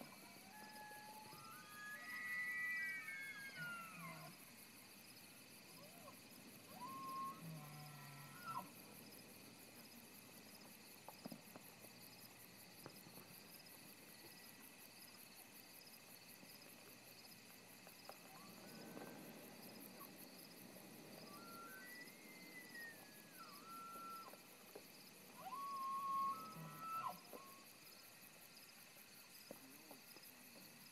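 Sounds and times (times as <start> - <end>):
crickets and insects chirping: 0.0 - 30.9
distant elk bugling: 0.2 - 4.3, 21.0 - 24.4, 25.4 - 27.4.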